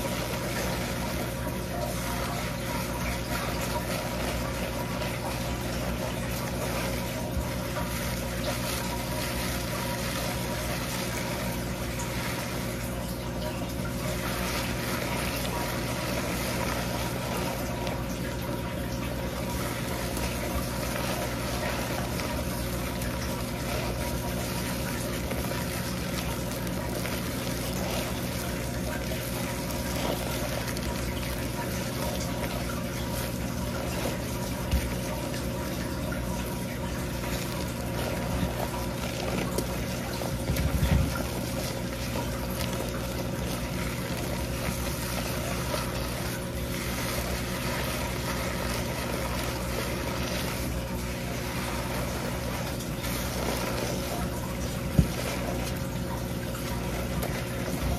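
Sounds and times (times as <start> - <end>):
low steady hum: 0.0 - 57.9
running tap water: 0.0 - 57.9.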